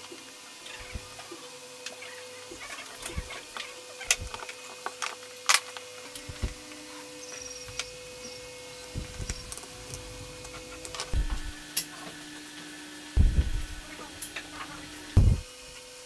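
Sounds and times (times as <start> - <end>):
faint steady hum: 0.6 - 12.0, 13.2 - 15.7.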